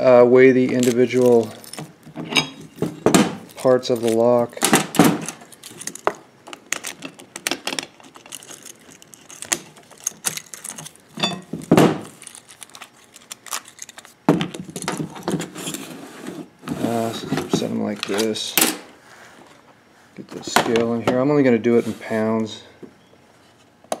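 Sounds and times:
keys jangling: 0:00.8 - 0:02.6, 0:05.2 - 0:06.0, 0:06.8 - 0:11.5.

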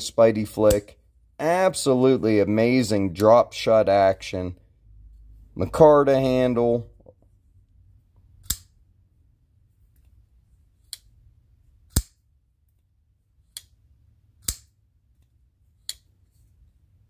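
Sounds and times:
knife blade snapping open: 0:14.4 - 0:14.7.

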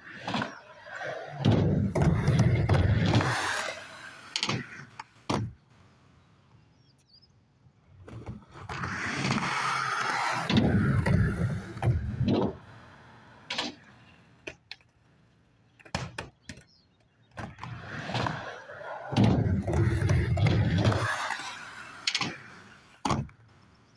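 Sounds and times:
skateboard wheels rumbling: 0:00.0 - 0:05.9, 0:07.8 - 0:14.4, 0:17.2 - 0:23.9
skateboard clacks: 0:00.1 - 0:05.6, 0:15.7 - 0:23.5.

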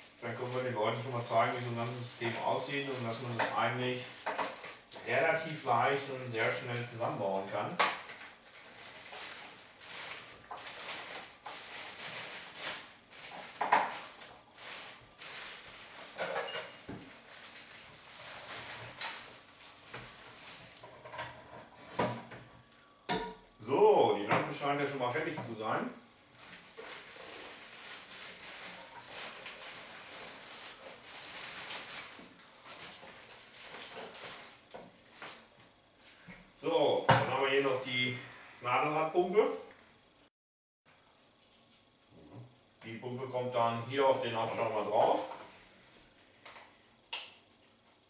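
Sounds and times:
plastic packaging crinkling: 0:00.0 - 0:21.0, 0:26.4 - 0:35.5.

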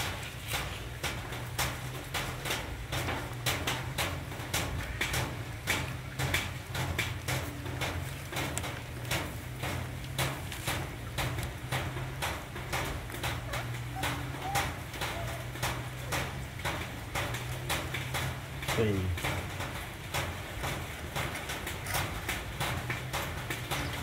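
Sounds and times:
puppies lapping food: 0:00.1 - 0:24.0.

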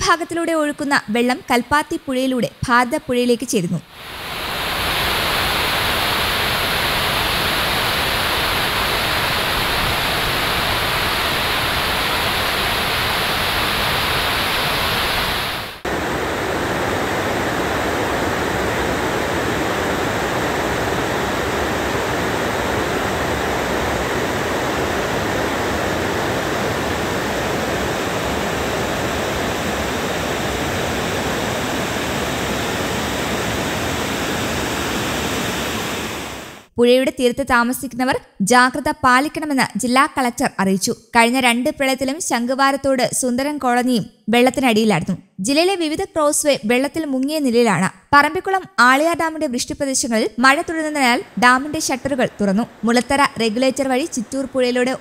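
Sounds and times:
fast-flowing river water: 0:03.9 - 0:36.7.

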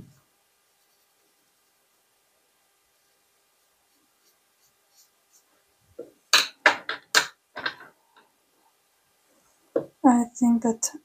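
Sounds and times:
paintbrush scratching on paper: 0:00.7 - 0:02.0, 0:02.9 - 0:05.6.

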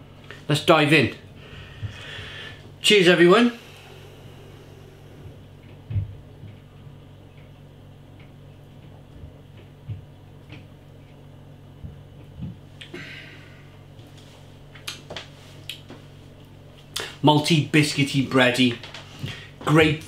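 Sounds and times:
low hum: 0:00.0 - 0:20.0
breath out: 0:12.8 - 0:13.7.

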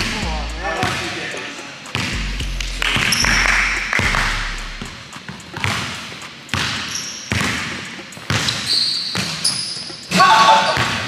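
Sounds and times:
basketball bouncing on wood floor: 0:01.9 - 0:02.2, 0:04.8 - 0:09.9.

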